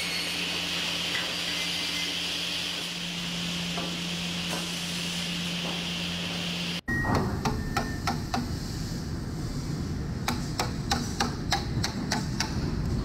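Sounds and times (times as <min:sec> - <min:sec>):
hammer striking a chisel: 0:06.9 - 0:08.6, 0:10.2 - 0:12.7.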